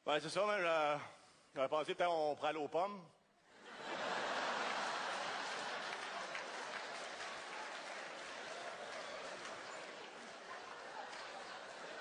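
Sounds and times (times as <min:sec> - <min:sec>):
audience laughing: 0:03.6 - 0:12.0
audience applauding: 0:03.9 - 0:12.0.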